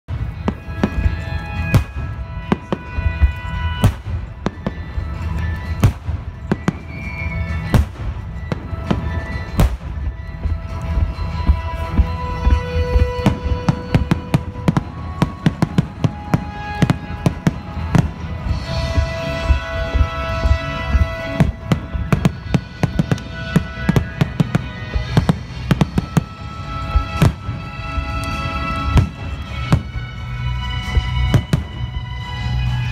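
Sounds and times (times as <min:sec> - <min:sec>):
fireworks bangs: 0:00.1 - 0:32.0
music playing: 0:00.1 - 0:32.9.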